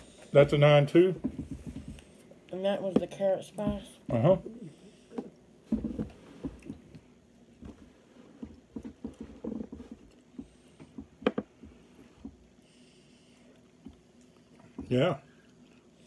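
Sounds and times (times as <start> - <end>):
knocks and rustles on table: 1.2 - 2.0, 5.2 - 6.8, 7.6 - 12.4
people chewing: 4.6 - 16.0.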